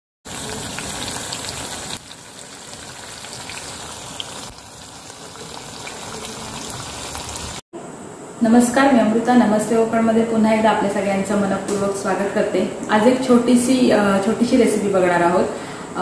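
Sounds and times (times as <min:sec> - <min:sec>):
battered leaves sizzling in hot oil: 0:00.3 - 0:07.6.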